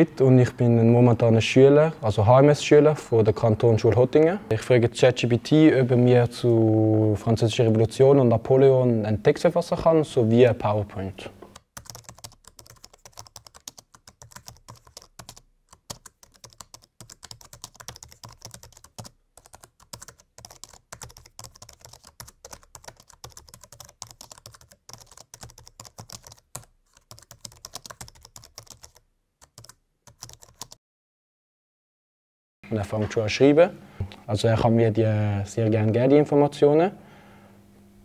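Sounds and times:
laptop keyboard typing: 11.6s - 30.8s.

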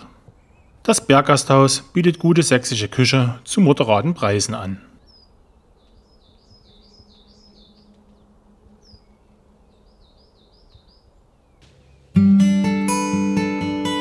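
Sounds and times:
small songbird singing: 0.3s - 0.9s, 5.0s - 12.4s.

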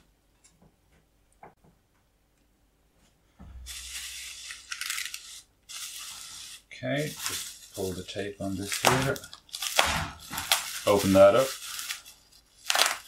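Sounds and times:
bubble wrap crinkling: 3.6s - 13.0s.

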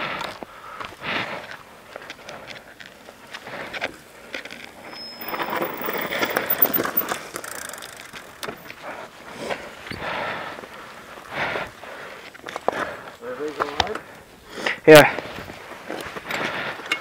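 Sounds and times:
bike tyres on dirt and stones: 0.0s - 17.0s
bike clicks and rattles: 0.2s - 10.0s, 15.3s - 17.0s.

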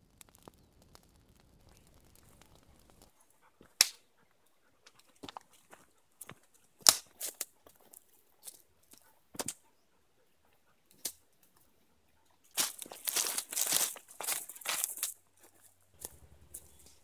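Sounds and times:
footsteps crunching twigs and leaves: 12.5s - 17.0s.

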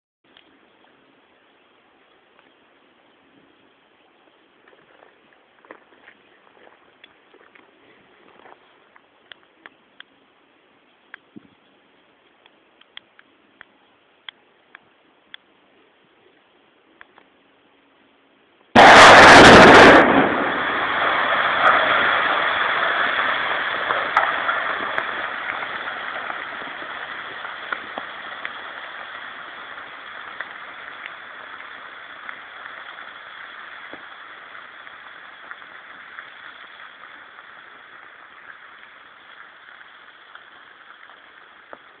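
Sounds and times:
loud explosion: 18.8s - 33.1s
rock falling rumble and clatter: 18.8s - 39.0s
sharp cracks: 18.8s - 42.0s.

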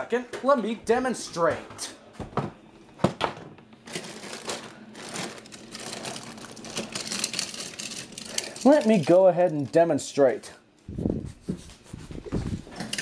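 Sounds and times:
rustling and crinkling handling: 3.7s - 10.2s.

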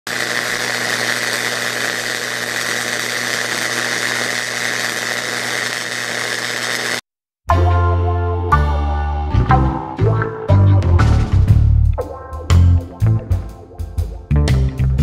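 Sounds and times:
welding arc crackling: 0.1s - 7.1s.

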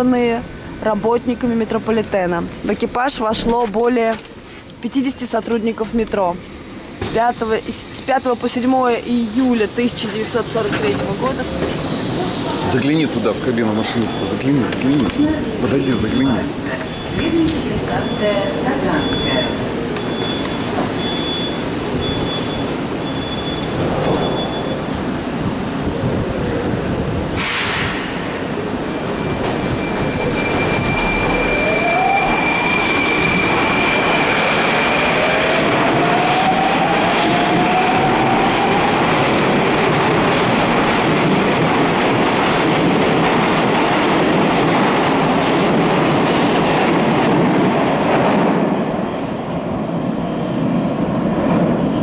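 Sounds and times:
metro train pulling out: 0.0s - 52.0s
short hiss: 27.4s - 28.2s
high steady squeal: 29.5s - 38.9s.

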